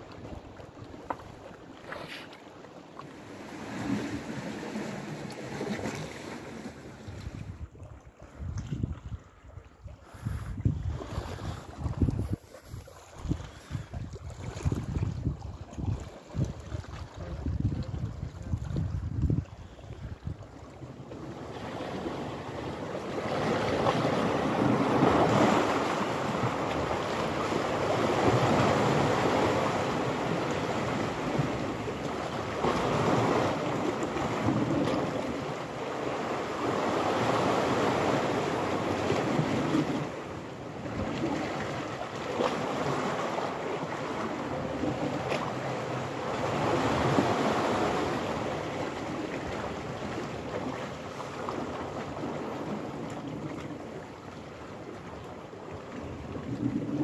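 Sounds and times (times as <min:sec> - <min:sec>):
waves washing against rocks: 0:03.2 - 0:07.6, 0:21.2 - 0:53.9
wind buffeting microphone: 0:07.1 - 0:20.6.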